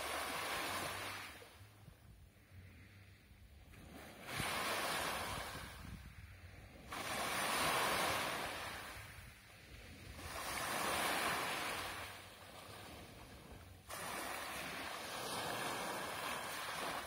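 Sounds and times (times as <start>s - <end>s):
waves breaking on pebble beach: 10.2s - 12.1s, 13.9s - 17.0s.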